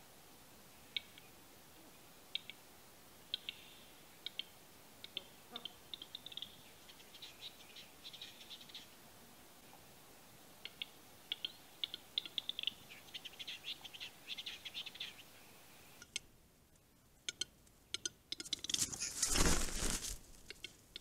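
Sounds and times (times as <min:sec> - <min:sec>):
bird display song: 0:00.8 - 0:01.4, 0:02.3 - 0:02.6, 0:03.3 - 0:09.0, 0:10.6 - 0:16.2.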